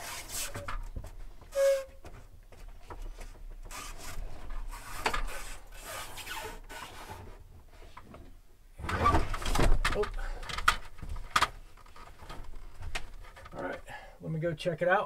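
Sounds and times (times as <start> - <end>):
short squeak: 1.5 - 2.0.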